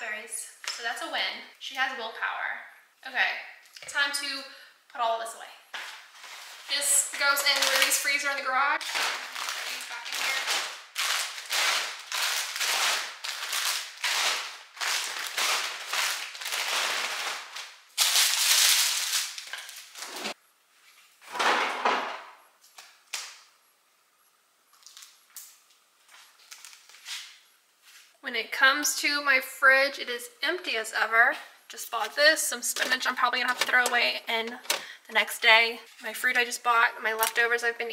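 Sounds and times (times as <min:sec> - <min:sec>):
shopping bag crinkling: 0:06.1 - 0:20.4.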